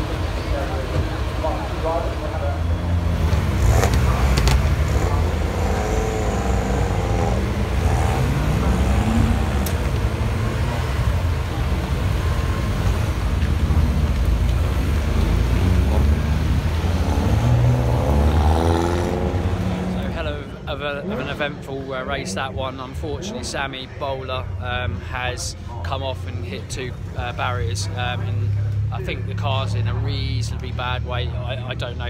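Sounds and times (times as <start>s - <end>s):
race car engines droning: 0.0s - 32.0s.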